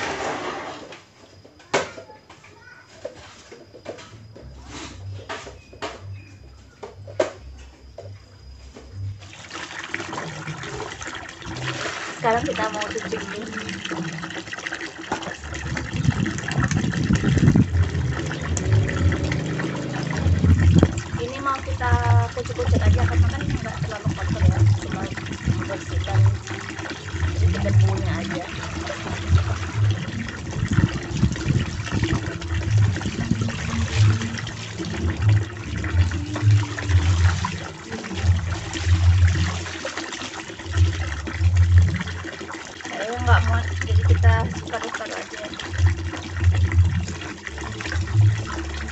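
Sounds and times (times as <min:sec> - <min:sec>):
water splashing into plastic basin: 0:09.2 - 0:48.9
loud uneven low rumble: 0:15.4 - 0:39.6, 0:45.7 - 0:48.9.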